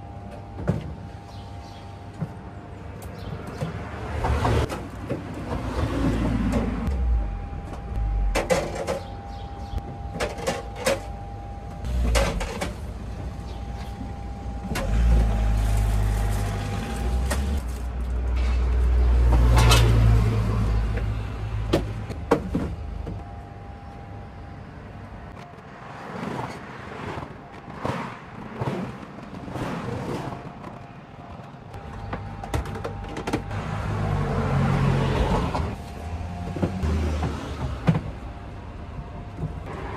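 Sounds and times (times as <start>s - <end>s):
low rumble: 6.2s - 9.8s.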